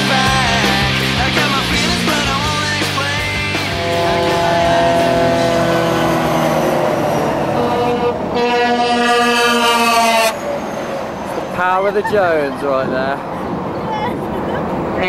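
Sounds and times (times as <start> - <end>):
truck air horn blasts: 3.6 - 10.5.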